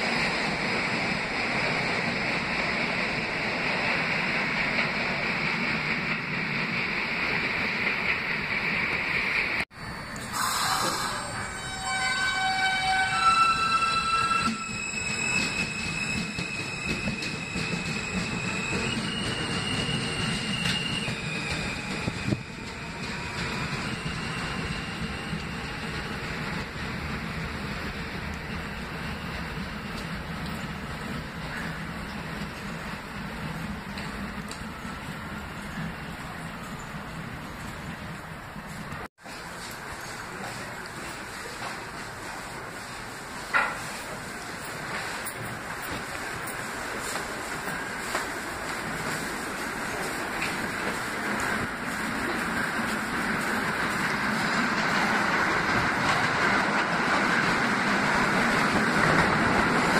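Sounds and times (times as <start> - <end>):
subway trains roaring: 0.0 - 59.9
station hiss: 9.8 - 11.6.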